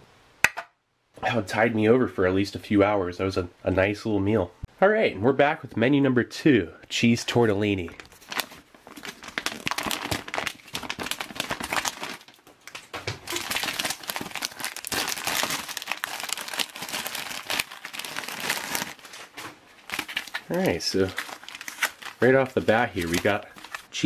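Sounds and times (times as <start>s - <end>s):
plastic packaging crinkling: 7.9s - 24.0s.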